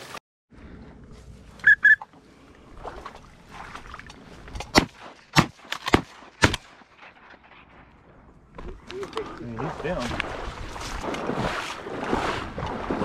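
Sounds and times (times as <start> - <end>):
shotgun shots: 4.7 - 7.6.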